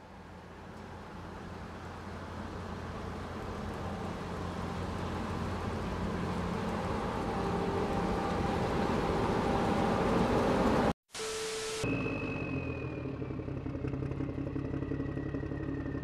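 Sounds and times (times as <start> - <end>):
van engines passing slowly: 0.0 - 11.0, 12.0 - 16.0.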